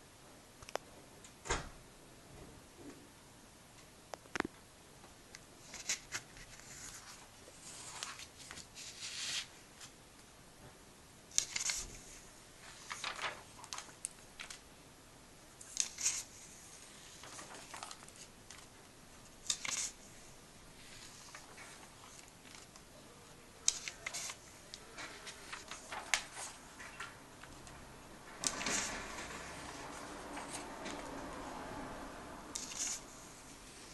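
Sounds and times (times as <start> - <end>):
comic book pages turning: 5.6 - 9.9, 11.4 - 14.6, 15.7 - 18.7, 19.4 - 20.2, 20.8 - 22.9, 23.6 - 27.7, 28.4 - 31.2, 32.6 - 33.2.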